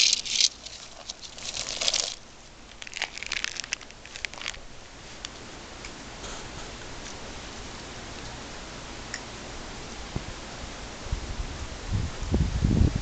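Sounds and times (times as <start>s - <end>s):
snake rustling on gravel: 0.0s - 5.3s.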